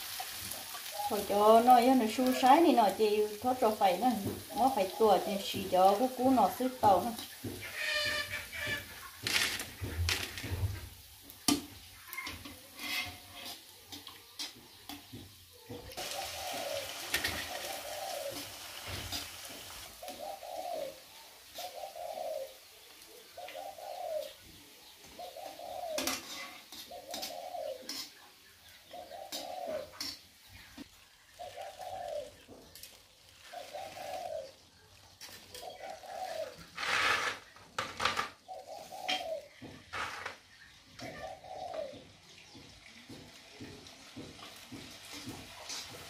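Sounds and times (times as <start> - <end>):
dove cooing: 0.9 - 1.6, 15.9 - 19.2, 20.0 - 24.4, 25.1 - 28.1, 28.9 - 30.2, 31.4 - 32.5, 33.4 - 34.6, 35.4 - 37.1, 38.4 - 40.1, 41.0 - 42.2.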